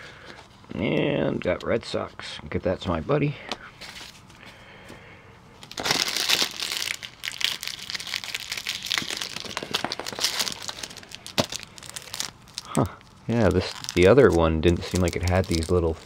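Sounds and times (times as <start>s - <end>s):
cellophane wrapper crinkling: 5.6s - 16.0s.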